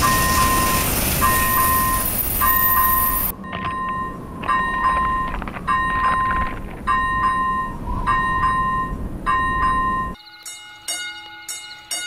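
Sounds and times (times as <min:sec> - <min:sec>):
level crossing bell ringing: 0:07.0 - 0:12.0.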